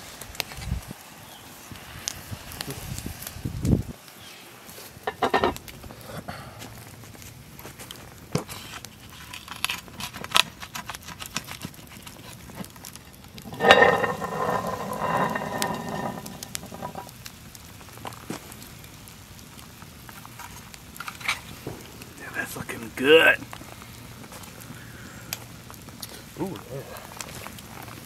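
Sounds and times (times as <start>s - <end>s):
campfire crackling and popping: 0.0s - 28.0s
metal lid scraping: 5.1s - 5.6s, 13.4s - 17.1s.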